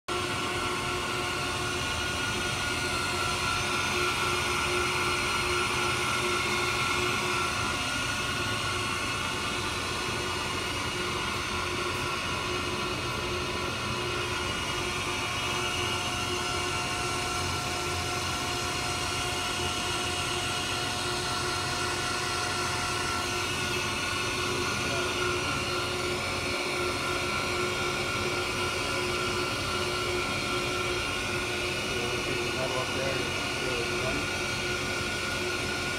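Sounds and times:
surface grinder humming: 19.5 - 35.9.

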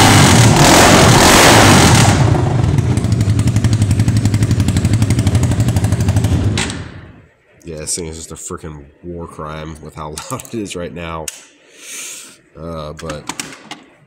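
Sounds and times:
loud motorcycle engine revving: 0.0 - 6.6.

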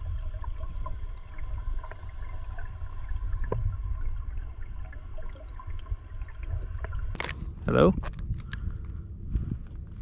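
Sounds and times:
underwater rush of water: 0.0 - 7.3
faint high hum: 0.0 - 10.0.

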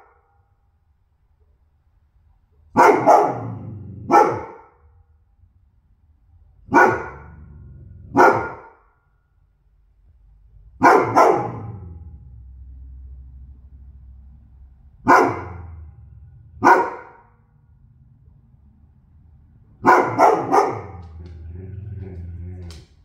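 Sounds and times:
dog barking: 2.7 - 4.8, 6.7 - 7.4, 8.1 - 8.8, 10.8 - 11.9, 15.0 - 15.9, 16.6 - 17.4, 19.8 - 22.2.

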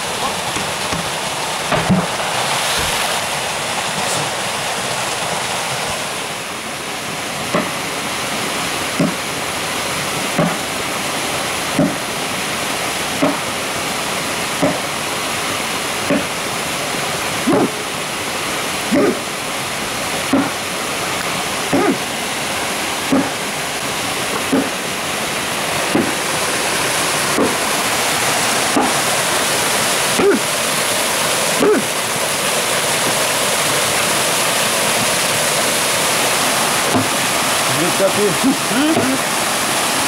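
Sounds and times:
waterfall rushing: 0.0 - 40.0
axe chopping log: 0.5 - 2.1, 7.5 - 7.8, 8.9 - 9.3, 10.3 - 10.7, 11.8 - 12.1, 13.2 - 13.5, 14.6 - 14.9, 16.1 - 16.4, 17.5 - 17.8, 18.9 - 19.2, 20.3 - 20.6, 21.7 - 22.0, 23.1 - 23.4, 24.4 - 24.8, 25.9 - 26.2, 27.4 - 27.6, 28.7 - 29.1, 36.9 - 37.2.

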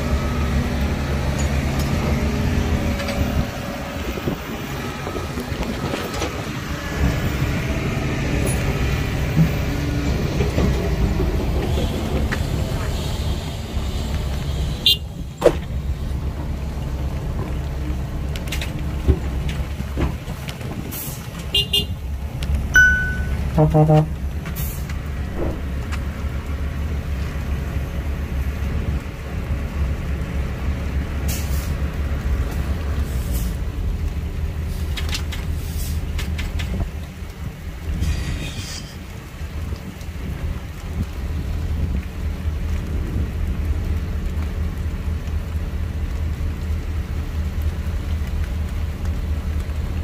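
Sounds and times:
diesel machinery rumbling: 0.0 - 50.0
brief pitched tone: 22.8 - 24.0.

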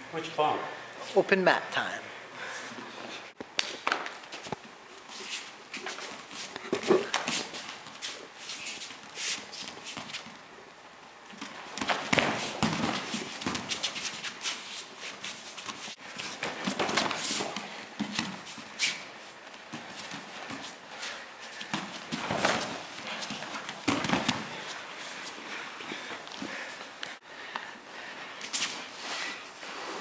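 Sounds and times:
bare feet slapping on mats: 3.5 - 10.4, 11.3 - 27.2.

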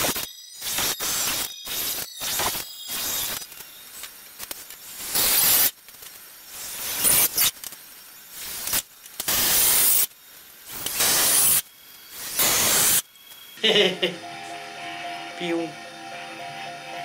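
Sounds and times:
drill driving screws into wood: 0.0 - 3.4, 6.6 - 7.6, 8.4 - 10.1, 10.7 - 13.0.

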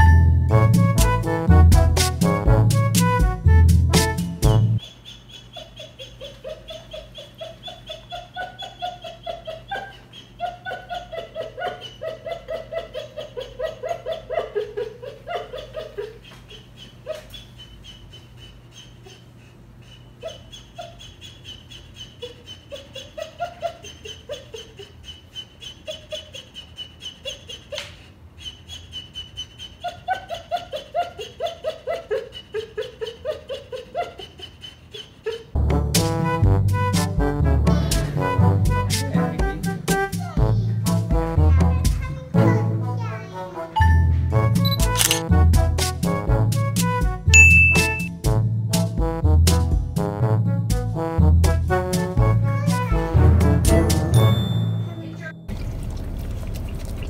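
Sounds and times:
puppy whimpering: 47.4 - 48.1.

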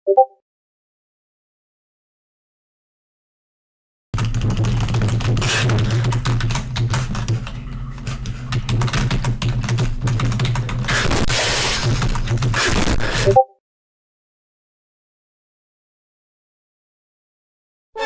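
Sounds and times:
fast keyboard typing: 4.2 - 13.4.

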